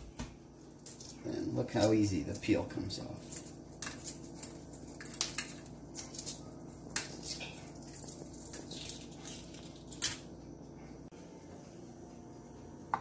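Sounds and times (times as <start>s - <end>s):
egg shell crackling: 3.2s - 10.4s.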